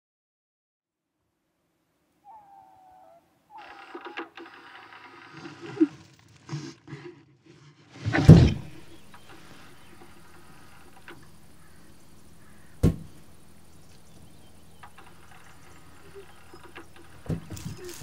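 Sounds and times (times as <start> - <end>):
low steady hum: 1.9 - 18.0
sharp knock: 12.8 - 13.1.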